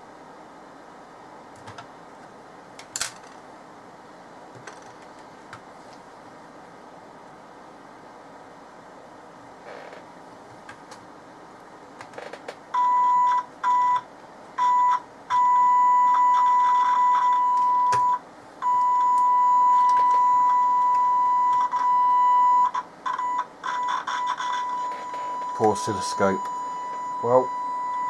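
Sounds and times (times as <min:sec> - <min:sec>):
radio loudspeaker test tone: 0:23.8 - 0:28.0.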